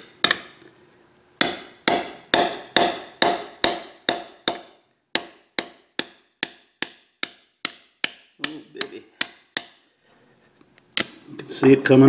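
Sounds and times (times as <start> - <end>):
hammer striking steel rod: 1.4 - 9.9.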